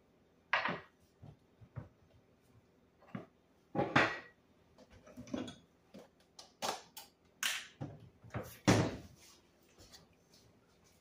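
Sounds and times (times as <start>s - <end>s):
kitchen items knocking and clicking: 0.5s - 2.1s, 3.0s - 9.1s.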